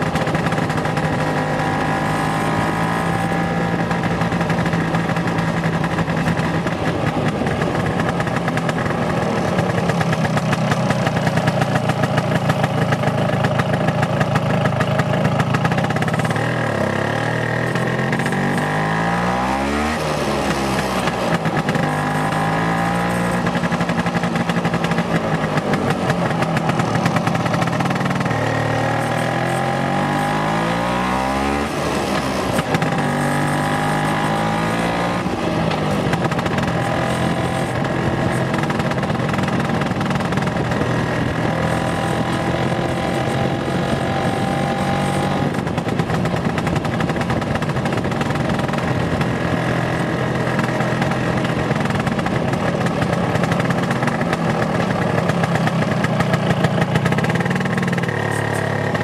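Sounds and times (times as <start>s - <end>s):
scooter engine running: 0.0s - 59.0s.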